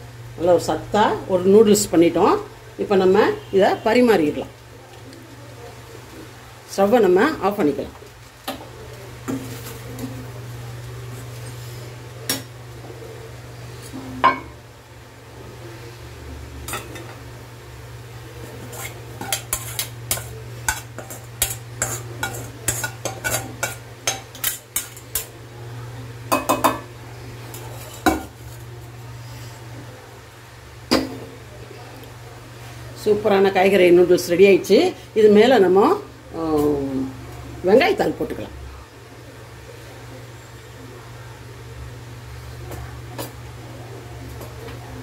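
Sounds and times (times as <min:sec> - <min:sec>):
spatula scraping metal wok: 0:18.4 - 0:25.2, 0:27.4 - 0:28.6.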